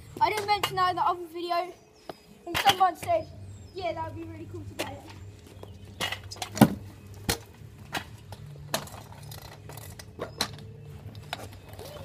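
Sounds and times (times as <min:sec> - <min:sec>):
scooter clattering on pavement: 0:00.2 - 0:01.2.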